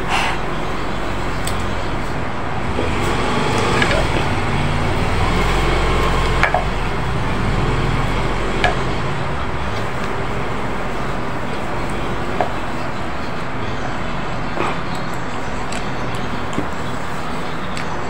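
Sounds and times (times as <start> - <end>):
eating clicks: 0.0 - 10.2, 14.5 - 18.0
steady rumbling background noise: 0.0 - 18.0.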